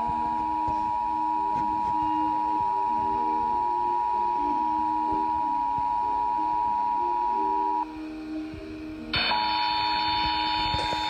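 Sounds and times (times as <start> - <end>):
faint tune: 0.0 - 11.0.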